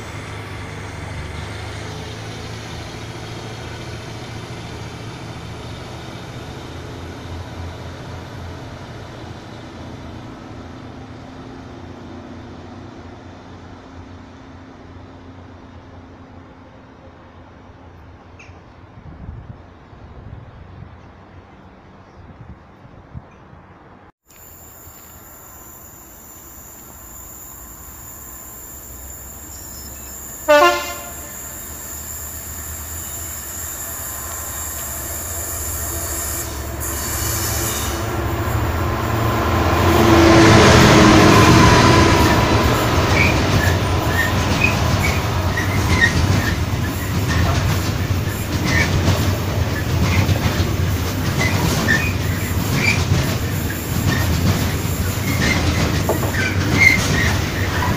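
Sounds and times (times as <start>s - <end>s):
diesel locomotive engine: 0.0s - 57.9s
high wheel squeals: 24.4s - 50.6s, 51.2s - 57.9s
train horn blast: 29.7s - 31.6s.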